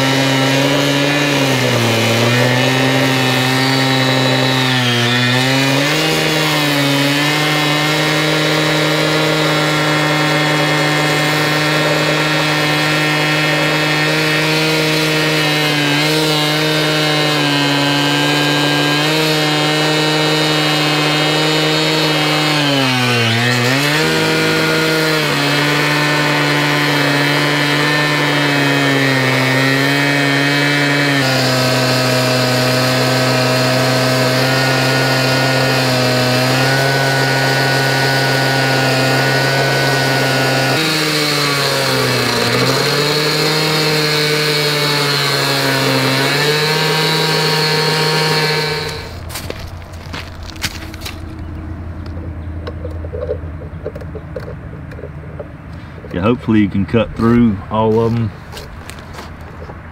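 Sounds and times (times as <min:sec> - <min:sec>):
cut-off saw grinding steel: 0:00.0 - 0:51.2.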